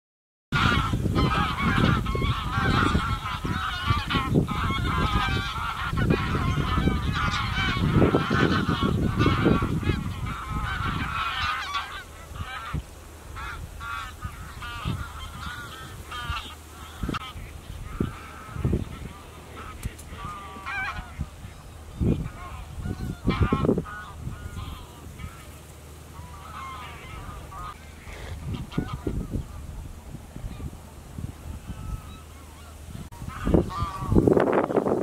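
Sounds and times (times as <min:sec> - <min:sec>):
geese honking: 0:00.6 - 0:35.0.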